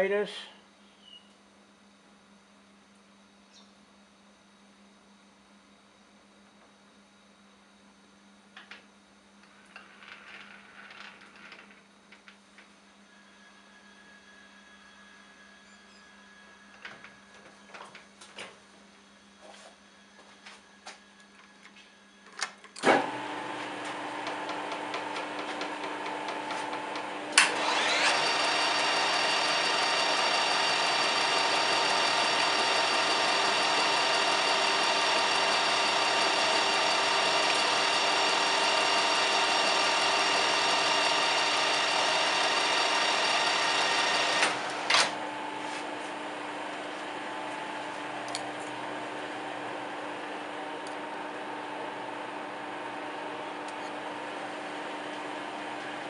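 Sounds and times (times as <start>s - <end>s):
lathe motor starting clunk: 22.8s - 56.0s
lathe motor whining: 22.9s - 56.0s.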